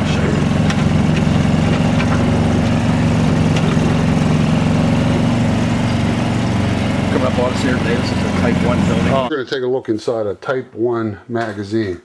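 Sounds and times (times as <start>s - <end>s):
small engine running steadily: 0.0s - 9.3s.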